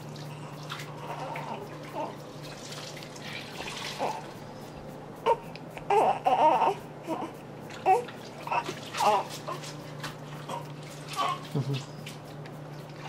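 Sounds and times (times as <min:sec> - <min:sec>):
baby whimpering cries: 0:01.0 - 0:02.2, 0:05.2 - 0:09.6.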